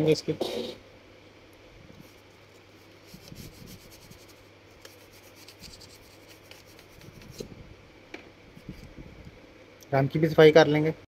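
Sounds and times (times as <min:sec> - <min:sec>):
small tool scrubbing: 0:02.0 - 0:07.5.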